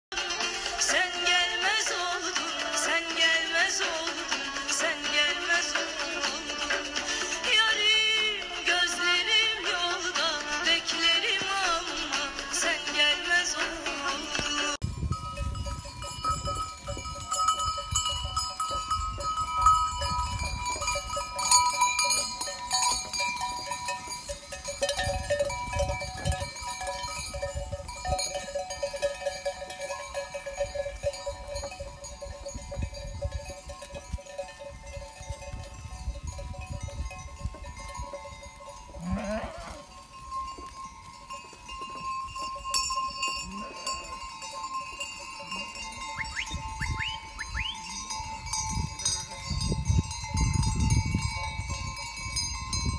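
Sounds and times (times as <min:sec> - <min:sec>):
sheep bells clanking: 0:00.4 - 0:52.9
sheep bleating: 0:39.0 - 0:39.9.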